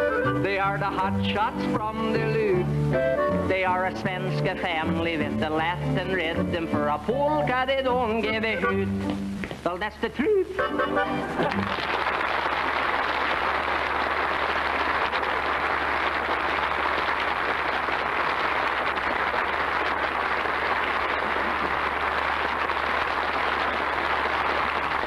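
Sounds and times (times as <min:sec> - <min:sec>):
audience applauding: 0:11.4 - 0:25.0.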